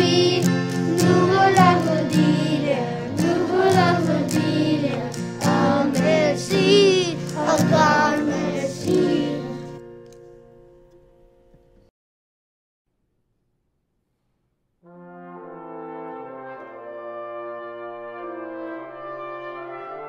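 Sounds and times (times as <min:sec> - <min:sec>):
group of voices singing: 0:00.0 - 0:09.8
instrumental accompaniment: 0:00.0 - 0:11.9, 0:14.9 - 0:20.0.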